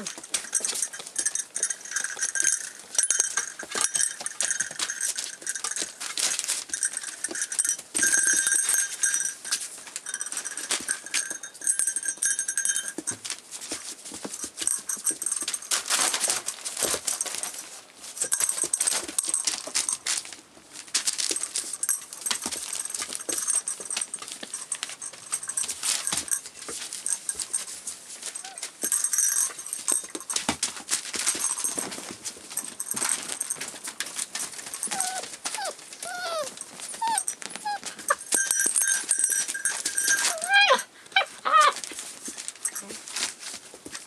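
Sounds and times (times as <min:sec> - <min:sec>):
paper rustling and scrabbling: 0:15.6 - 0:21.8
puppies whimpering and yelping: 0:34.8 - 0:38.3, 0:40.2 - 0:41.8.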